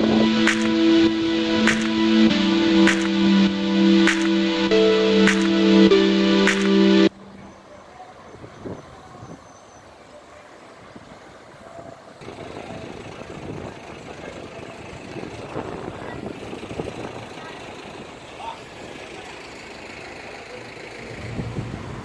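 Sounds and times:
background music: 0.0s - 7.3s
street ambience: 0.0s - 22.0s
vehicle engine running: 12.3s - 21.7s.

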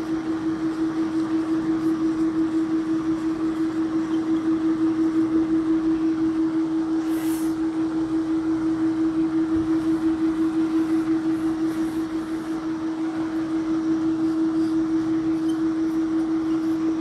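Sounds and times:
mechanical hum with flutter: 0.0s - 17.0s
cloth wiping whiteboard: 9.6s - 12.6s.

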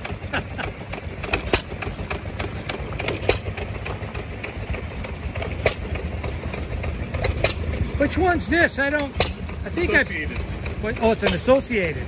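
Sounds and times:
low rumble of flywheels and belts: 0.0s - 12.0s
gas engine firing cracks: 9.0s - 9.5s.

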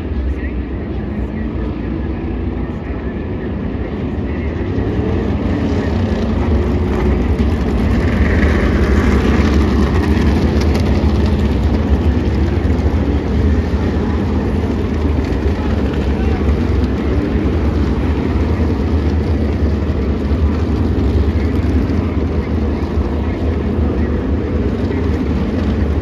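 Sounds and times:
race car engines passing: 0.0s - 26.0s.

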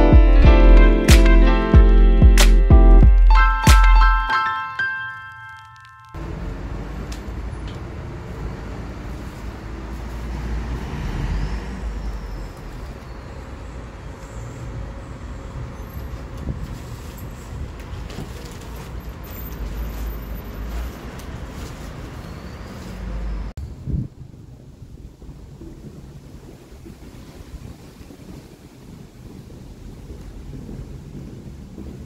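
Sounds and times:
road traffic rumble: 5.2s - 32.0s
wind buffeting microphone: 13.8s - 19.8s, 23.6s - 32.0s.

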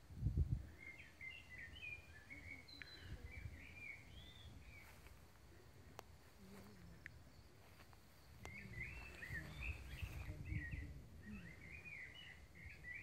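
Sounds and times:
low microphone rumble: 8.3s - 13.0s
songbird warbling: 8.4s - 13.0s.

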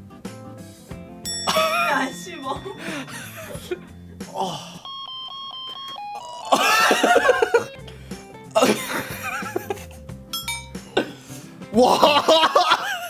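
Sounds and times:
electronic chime melody: 1.3s - 7.9s, 10.3s - 10.8s.

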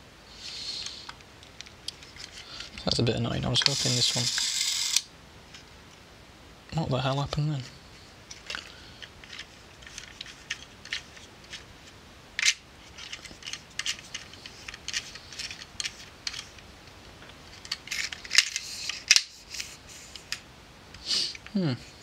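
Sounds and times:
hands handling film camera: 8.3s - 11.6s, 12.4s - 16.7s, 17.5s - 20.4s.

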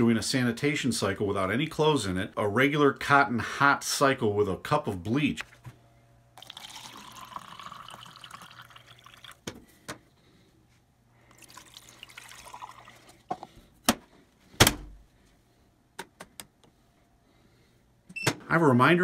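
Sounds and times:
liquid pouring into plastic: 6.4s - 9.5s, 11.3s - 13.5s.

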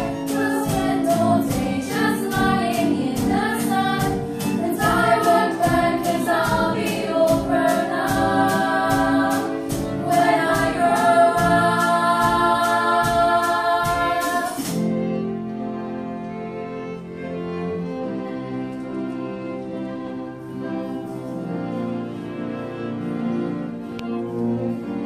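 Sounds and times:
ticking beat: 0.0s - 14.7s
girls singing together: 0.0s - 14.8s
musical accompaniment: 0.0s - 25.0s.

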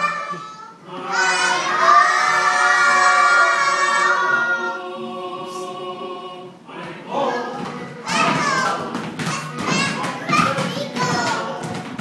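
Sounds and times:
children singing together: 0.0s - 12.0s.

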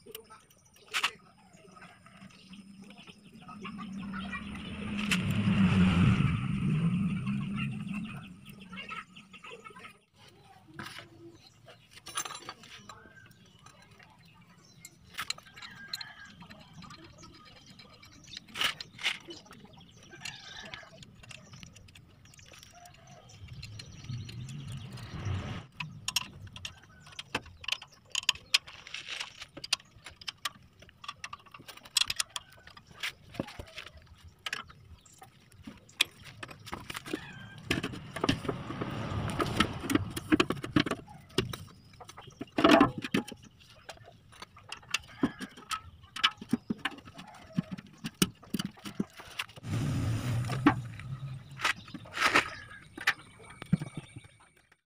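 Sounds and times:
rustling and scraping: 18.2s - 54.4s.

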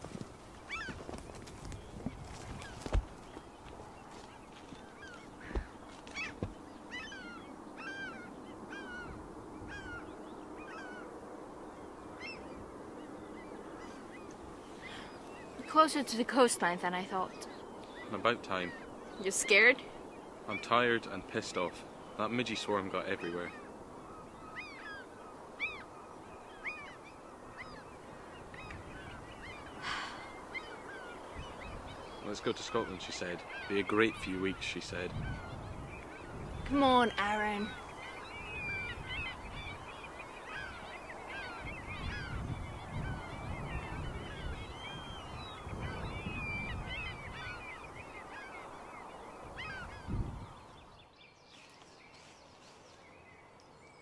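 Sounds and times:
flock of birds calling: 0.0s - 54.0s
outdoor background noise: 0.0s - 54.0s.

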